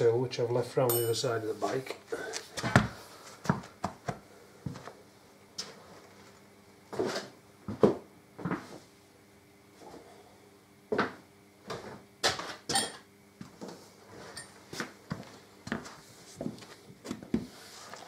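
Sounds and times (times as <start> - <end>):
hand tools knocking and clinking: 0.9 - 1.2.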